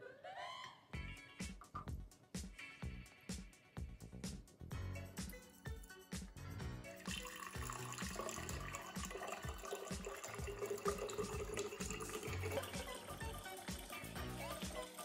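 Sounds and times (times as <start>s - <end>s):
background music with steady beat: 0.7s - 15.0s
water pouring into aquarium: 6.9s - 15.0s
water draining from tube: 7.0s - 15.0s.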